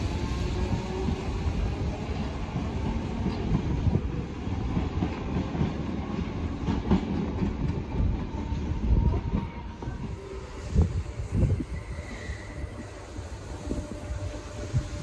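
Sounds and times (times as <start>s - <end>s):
train rumble: 0.0s - 15.0s
train wheels knocking on rail joints: 4.7s - 8.5s.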